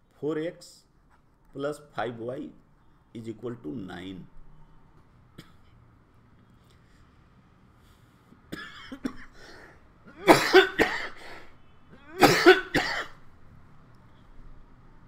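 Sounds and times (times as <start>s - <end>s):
man coughing: 8.5s - 11.4s, 12.0s - 13.2s.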